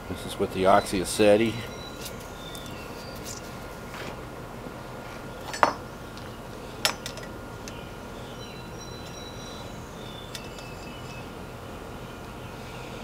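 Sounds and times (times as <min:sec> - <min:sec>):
metallic clinks: 0:08.8 - 0:11.3.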